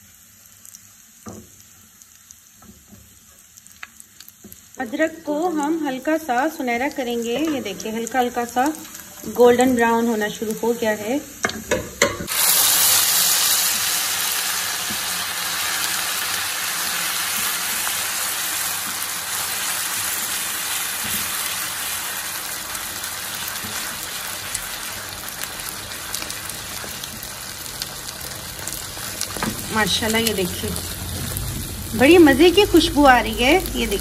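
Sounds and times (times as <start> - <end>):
greens sizzling in hot oil: 0.0 - 34.0
loud hiss: 12.3 - 17.4.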